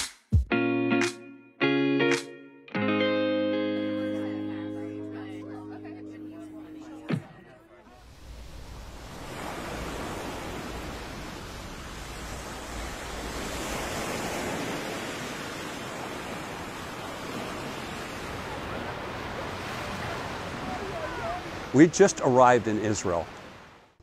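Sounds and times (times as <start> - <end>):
ocean waves breaking on beach: 6.9 - 24.0.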